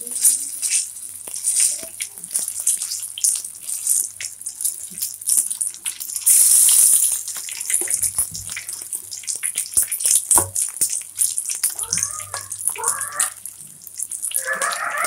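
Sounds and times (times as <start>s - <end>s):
battered food sizzling in oil: 0.0s - 15.0s
food dropped into hot oil hissing: 6.2s - 8.6s, 9.8s - 11.4s.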